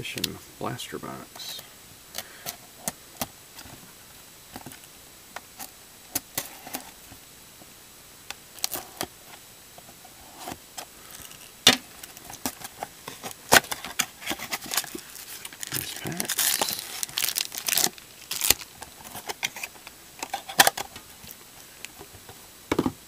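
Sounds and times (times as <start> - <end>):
box handling scratches and taps: 12.1 - 17.9, 18.5 - 22.3
knife slitting plastic wrap: 13.5 - 18.6.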